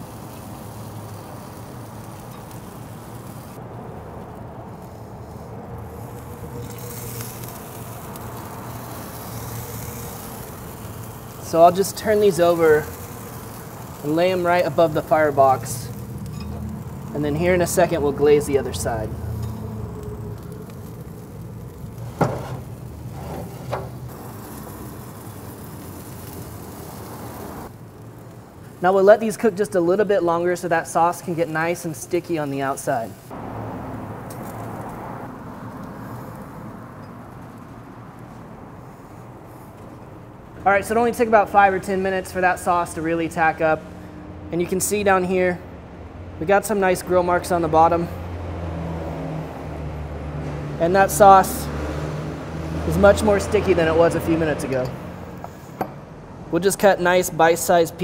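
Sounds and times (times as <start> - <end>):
grill fan humming: 0.0 - 33.3
bacon sizzling on a grill: 0.0 - 40.2.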